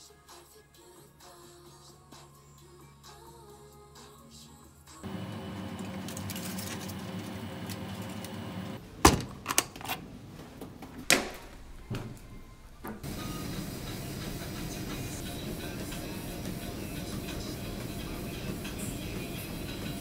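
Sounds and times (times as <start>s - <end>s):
chicken sizzling in a frying pan: 13.0s - 20.0s.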